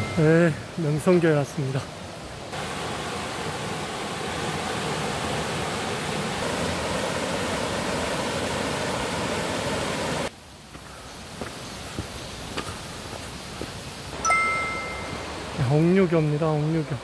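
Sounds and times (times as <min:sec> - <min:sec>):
stream rushing over rocky waterfall: 0:00.0 - 0:10.3, 0:14.1 - 0:17.0.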